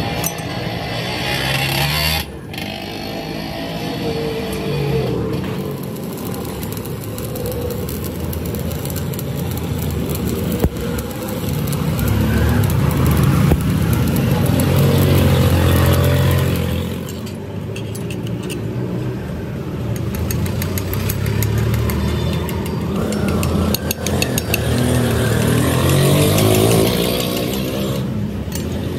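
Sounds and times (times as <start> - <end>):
arc welding crackling hiss: 4.1 - 17.1
sharp clicks: 19.9 - 27.5.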